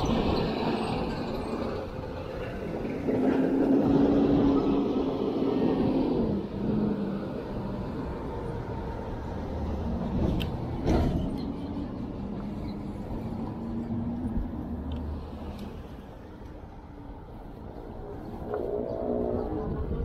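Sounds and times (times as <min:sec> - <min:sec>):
city street traffic: 0:00.0 - 0:20.0
vehicle engine passing: 0:17.8 - 0:20.0.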